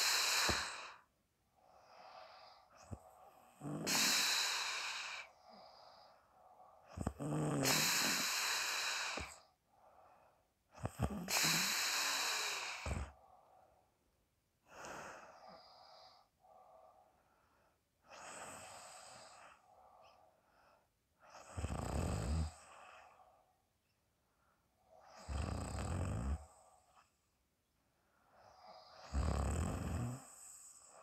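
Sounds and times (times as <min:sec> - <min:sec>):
person snoring: 0:00.0 - 0:01.0, 0:01.8 - 0:06.2, 0:06.8 - 0:09.4, 0:10.8 - 0:13.2, 0:21.3 - 0:23.2, 0:25.0 - 0:27.0, 0:28.5 - 0:31.0.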